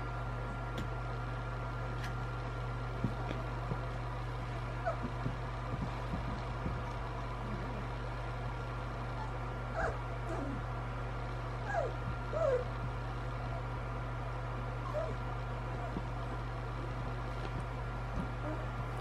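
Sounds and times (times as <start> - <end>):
low hum: 0.0 - 19.0
puppies whimpering and squeaking: 4.8 - 5.2, 9.2 - 10.6, 11.7 - 12.7, 14.8 - 15.2.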